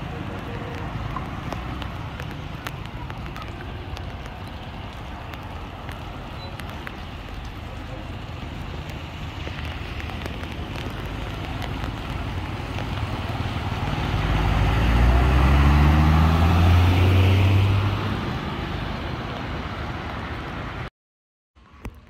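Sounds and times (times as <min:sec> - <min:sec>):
road and wind noise: 0:00.0 - 0:20.9, 0:21.6 - 0:22.0
heavy vehicle driving past: 0:13.0 - 0:20.8.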